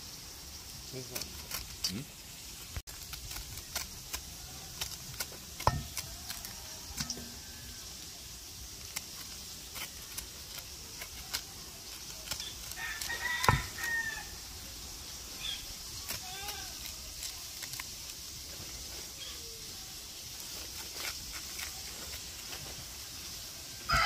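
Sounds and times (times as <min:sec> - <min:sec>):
rooster crowing: 0:06.0 - 0:08.2, 0:12.7 - 0:14.5, 0:23.8 - 0:24.0.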